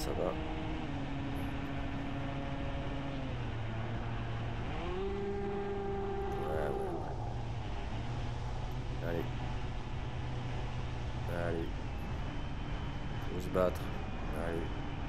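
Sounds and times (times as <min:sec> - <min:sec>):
electric motor and propeller: 0:00.0 - 0:15.0.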